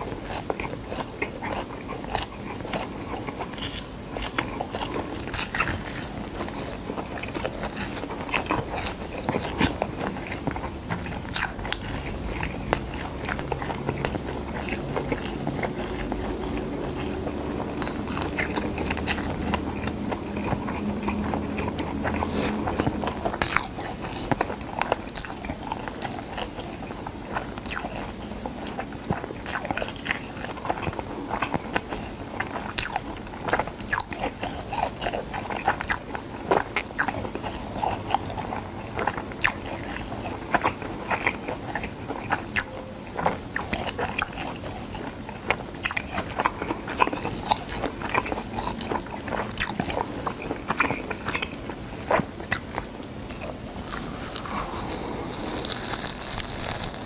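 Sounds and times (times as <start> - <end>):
crunching dried seaweed: 0.0 - 57.0
wet mouth sounds: 45.8 - 57.0.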